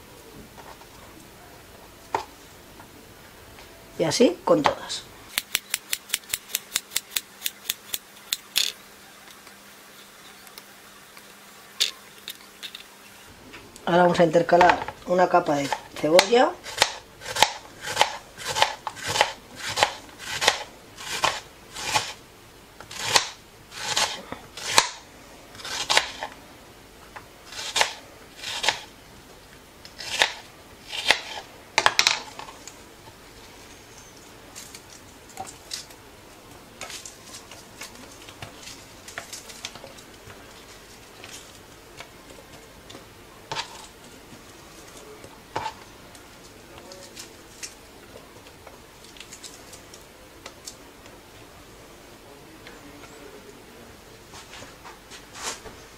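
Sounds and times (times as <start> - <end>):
knife chopping on cutting board: 15.6 - 22.2.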